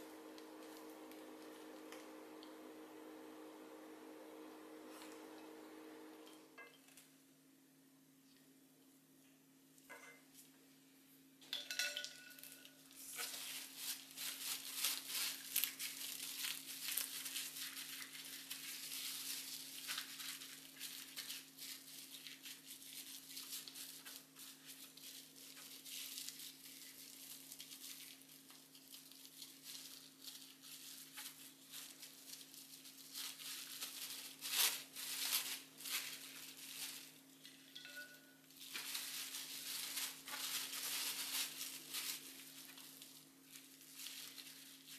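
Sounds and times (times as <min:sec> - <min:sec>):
steady low hum: 0:00.0 - 0:06.6
plastic cling wrap crinkling: 0:00.0 - 0:07.1, 0:12.3 - 0:44.9.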